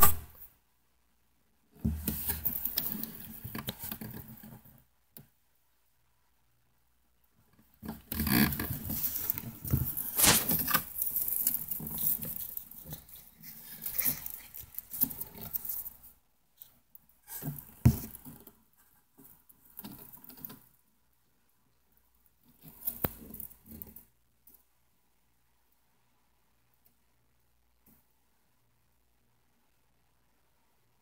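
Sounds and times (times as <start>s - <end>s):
dry rustling and crackling: 8.3s - 16.1s.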